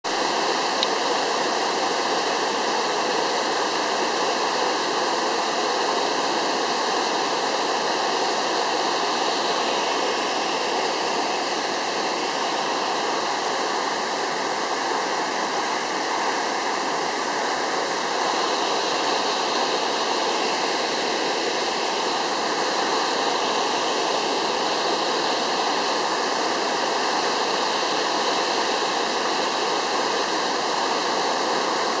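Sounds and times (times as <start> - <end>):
waterfall rushing: 0.1 - 32.0.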